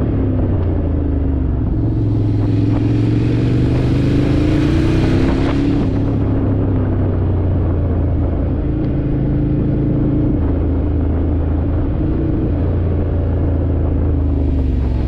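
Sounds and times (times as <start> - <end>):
motorcycle engine running: 0.0 - 15.0.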